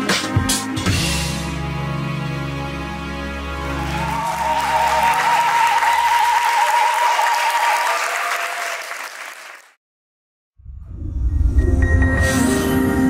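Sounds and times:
music: 0:00.0 - 0:06.6, 0:10.7 - 0:13.0
audience applauding: 0:03.6 - 0:09.8.

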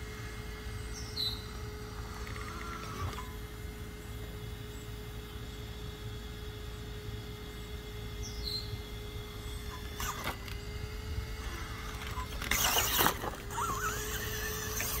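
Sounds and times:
rc car motor whining: 0:00.0 - 0:15.0
tyres scraping on concrete: 0:12.0 - 0:15.0.

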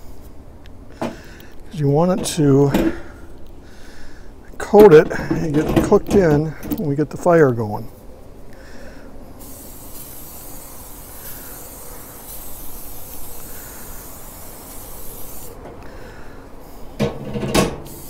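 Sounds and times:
cooking oil spray hissing: 0:09.4 - 0:15.7, 0:17.8 - 0:18.0.

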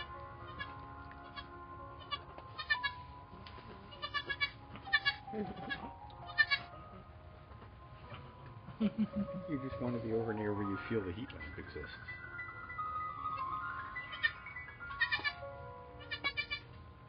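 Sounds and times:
goat kid bleating: 0:00.0 - 0:03.1, 0:03.9 - 0:06.7, 0:14.1 - 0:15.4, 0:16.0 - 0:16.6.

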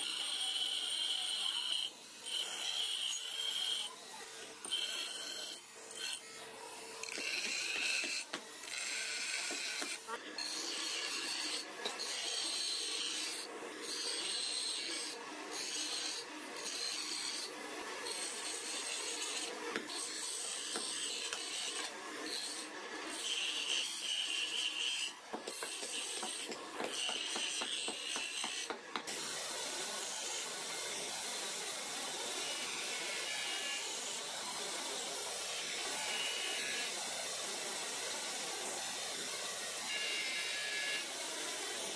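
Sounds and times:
knife grinding on grinder wheel: 0:00.0 - 0:06.4, 0:07.0 - 0:31.1
grinder wheel running: 0:00.1 - 0:41.9.

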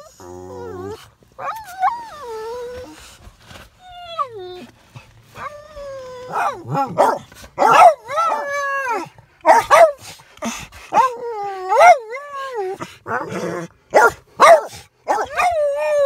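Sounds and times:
dog barking: 0:06.3 - 0:08.4, 0:09.4 - 0:10.0, 0:13.9 - 0:15.6
dog howling: 0:07.6 - 0:09.8, 0:11.0 - 0:13.3, 0:15.1 - 0:16.0.

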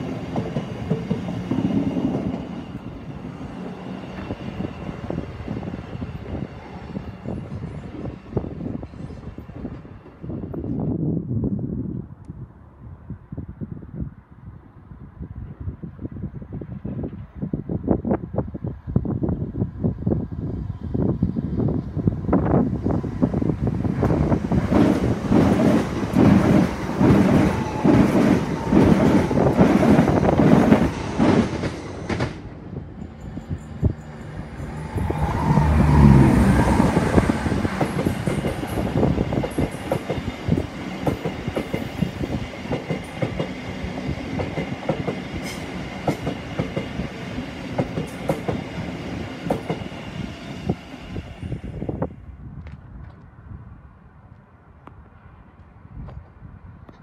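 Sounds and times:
train clattering over rail joints: 0:36.9 - 0:43.6.

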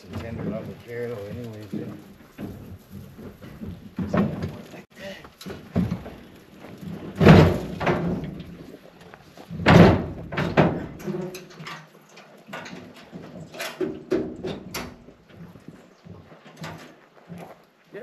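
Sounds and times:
loud thumps on trailer: 0:01.8 - 0:04.7, 0:05.5 - 0:06.2, 0:07.0 - 0:08.6, 0:09.5 - 0:11.0.

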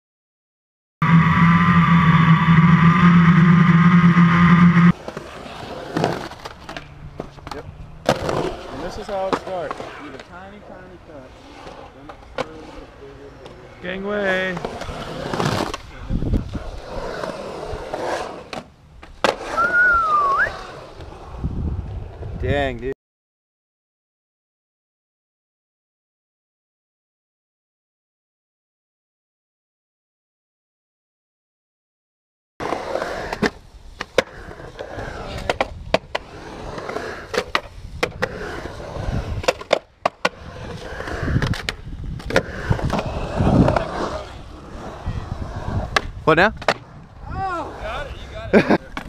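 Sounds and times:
skateboard wheels rolling on concrete: 0:01.0 - 0:22.9, 0:32.6 - 0:49.0
short thin whistle: 0:19.5 - 0:20.6
skateboard clack: 0:32.7 - 0:44.4, 0:45.4 - 0:47.8, 0:48.6 - 0:49.0.

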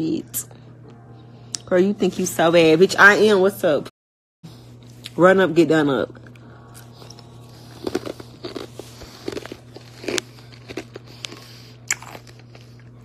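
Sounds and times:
ice cubes crunched between teeth: 0:07.0 - 0:12.9.

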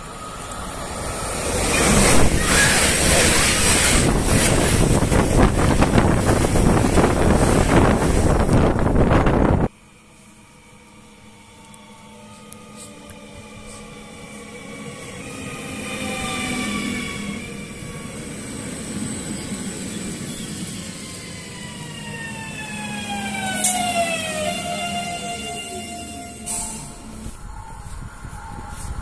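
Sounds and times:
train motor whine: 0:08.6 - 0:18.1.

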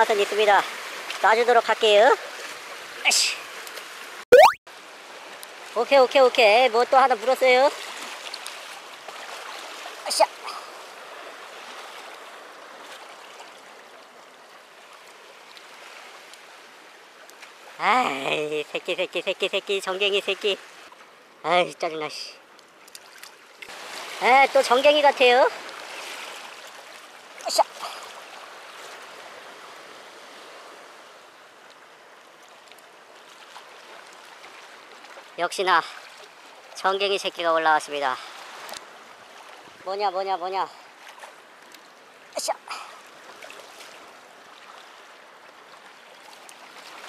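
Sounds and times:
water lapping against rocks: 0:22.5 - 0:31.0, 0:40.7 - 0:47.0
small waves washing against rocks: 0:22.9 - 0:27.4.

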